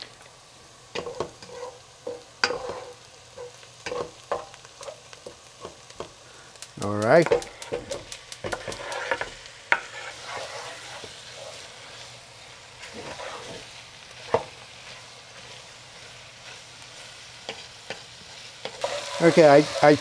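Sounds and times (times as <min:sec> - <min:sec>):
meat and onions sizzling: 0:00.0 - 0:20.0
wooden spoon stirring: 0:08.4 - 0:12.0, 0:12.8 - 0:15.7.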